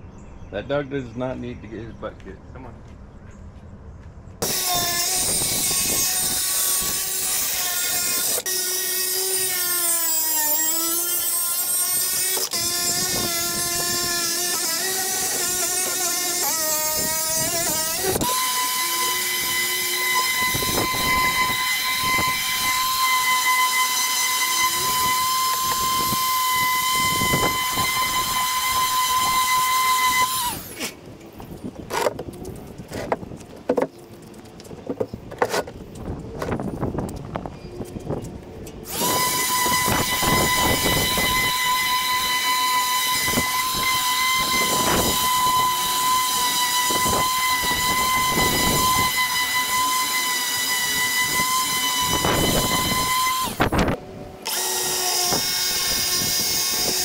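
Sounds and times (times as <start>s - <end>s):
circular saw cutting plywood: 4.4s - 31.0s, 38.8s - 57.0s
orbital sander whining: 4.4s - 33.9s, 35.9s - 57.0s.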